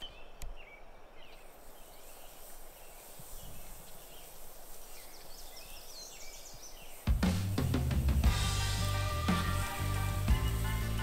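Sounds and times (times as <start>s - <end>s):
faint bird chirps: 0.0s - 7.7s
steak sizzling on a grill: 8.3s - 11.0s.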